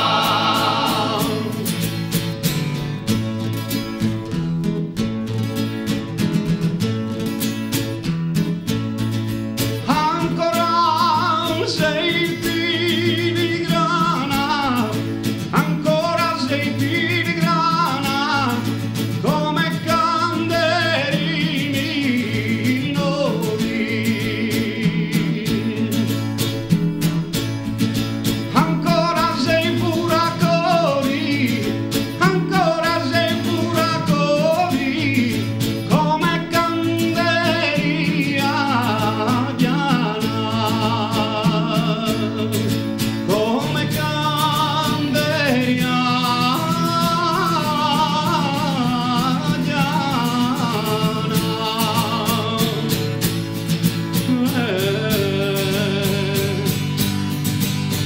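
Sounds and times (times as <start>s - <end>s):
man singing solo melody: 0.0s - 1.8s, 9.8s - 26.1s, 28.5s - 42.7s, 43.3s - 53.1s, 54.2s - 56.8s
men holding low chords: 0.0s - 2.1s
guitar accompaniment: 0.0s - 58.0s.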